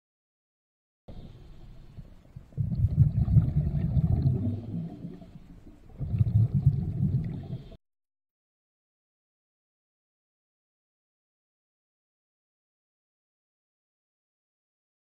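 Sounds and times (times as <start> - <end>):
underwater exhaled bubbles: 1.1 - 7.8.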